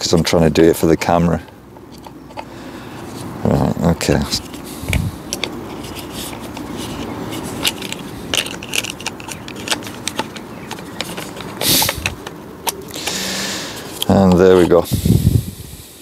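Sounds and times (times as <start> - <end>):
steady rustling: 0.0 - 15.5
plastic and metal parts clicking: 4.0 - 13.2.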